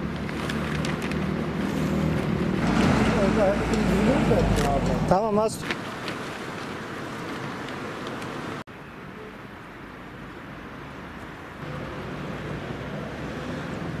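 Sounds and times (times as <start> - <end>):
vehicle engine hum: 0.0 - 5.3, 11.6 - 14.0
steady traffic noise: 0.0 - 14.0.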